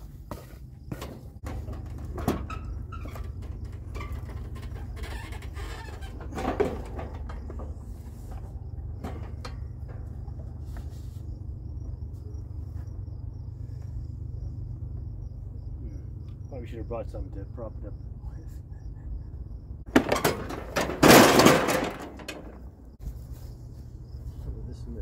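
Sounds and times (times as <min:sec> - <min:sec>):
faint crickets chirping: 0:00.0 - 0:25.0
knocks and clunks of mower: 0:00.9 - 0:12.1, 0:19.9 - 0:23.0
steady low rumble: 0:07.0 - 0:19.9, 0:22.4 - 0:25.0.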